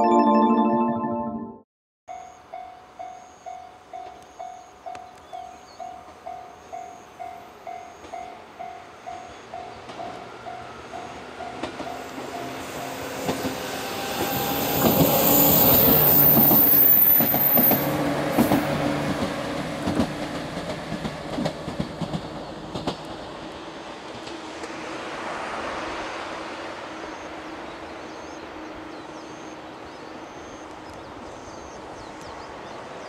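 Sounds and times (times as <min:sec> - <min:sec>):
level-crossing bell dinging: 0:00.0 - 0:01.6
electric train passing: 0:06.0 - 0:30.5
wheels clacking over rail joints: 0:17.2 - 0:23.1.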